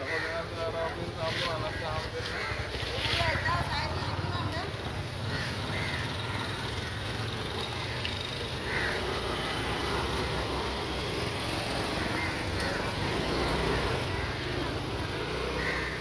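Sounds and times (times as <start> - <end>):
crow cawing: 0.0 - 3.7, 5.2 - 9.9, 11.8 - 16.0.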